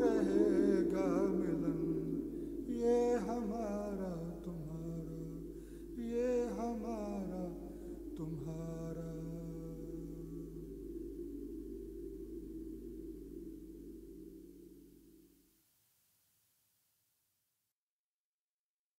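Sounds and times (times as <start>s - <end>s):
voice chanting melismatic phrases: 0.0s - 10.6s
steady low drone: 0.0s - 15.3s.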